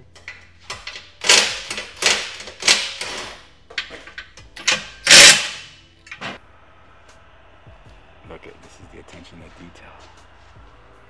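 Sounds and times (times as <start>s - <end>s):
wrench clicking: 0.0s - 6.3s.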